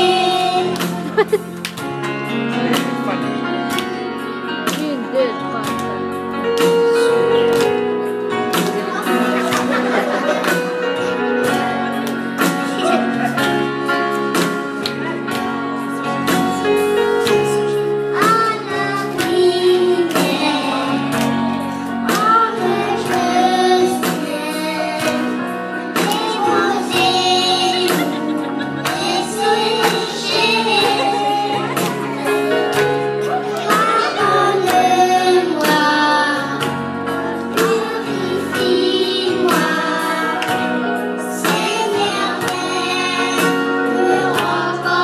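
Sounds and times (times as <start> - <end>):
children singing: 0.0 - 1.2, 18.2 - 21.4, 22.1 - 25.4, 26.0 - 36.8, 37.5 - 45.0.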